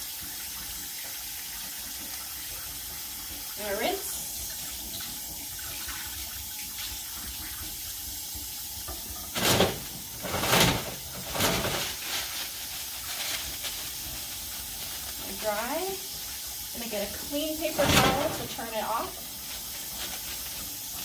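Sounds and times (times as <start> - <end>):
tap water running into sink: 0.0 - 21.0
paper towels pulled from dispenser: 9.4 - 15.4.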